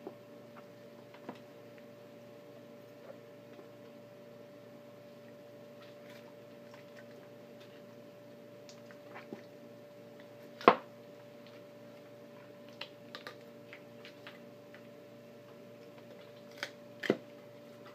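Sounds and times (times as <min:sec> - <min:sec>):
faint steady hum: 0:00.0 - 0:17.9.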